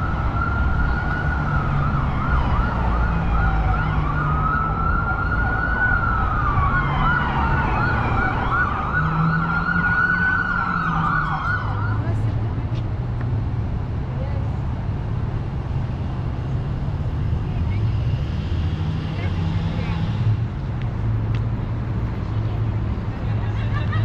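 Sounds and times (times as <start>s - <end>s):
emergency siren wailing and yelping: 0.0s - 12.0s
city traffic rumble: 0.0s - 24.0s.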